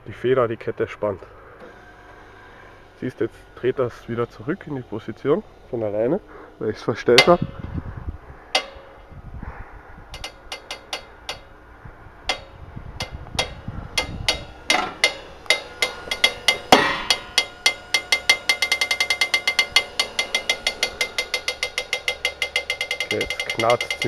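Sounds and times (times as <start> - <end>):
motor turning chain drive: 1.2 - 9.2, 10.0 - 24.0
creaking clicks: 10.1 - 24.0
person speaking: 23.1 - 24.0.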